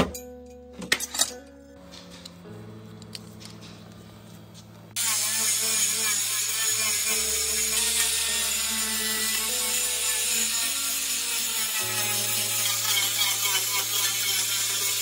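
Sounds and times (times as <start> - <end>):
angle grinder grinding metal: 5.0 - 15.0.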